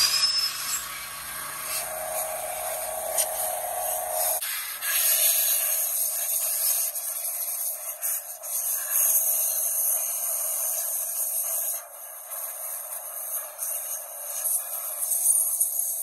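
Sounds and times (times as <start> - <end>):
air blower hissing: 0.0 - 8.6.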